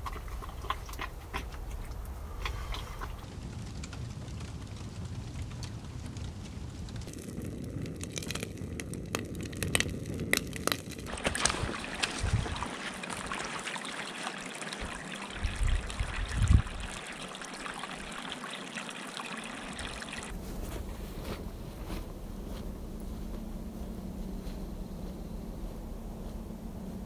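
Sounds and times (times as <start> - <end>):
water streaming and trickling: 0.0 - 3.3, 11.1 - 20.3
fire crackling with pops: 1.0 - 17.8.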